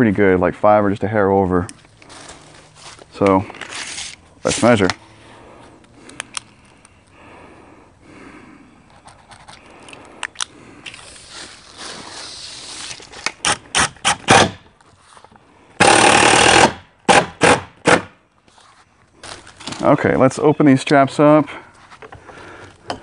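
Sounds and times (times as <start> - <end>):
tape measure retracting rattle: 3.6 - 4.6, 10.8 - 13.9
tape measure blade scraping: 3.6 - 4.8, 10.9 - 15.3.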